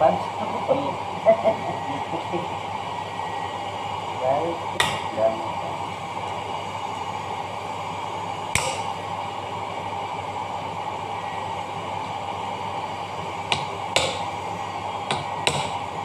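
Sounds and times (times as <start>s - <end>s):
steady hum: 0.0s - 16.0s
hammer tapping metal rod: 4.8s - 5.1s, 8.6s - 8.9s, 13.5s - 14.3s, 15.1s - 15.8s.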